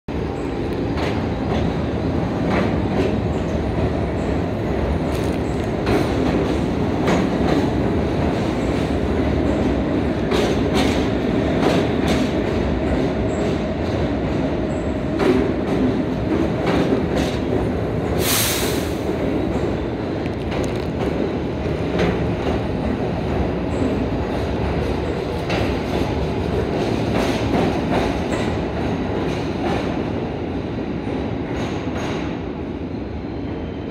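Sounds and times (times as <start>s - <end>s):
subway train rumbling: 0.1s - 33.9s
short loud hiss: 18.2s - 19.1s.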